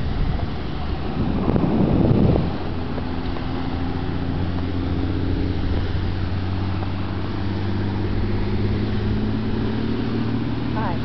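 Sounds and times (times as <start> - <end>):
speedboat engine drone: 0.0 - 11.0
wind: 0.0 - 11.0.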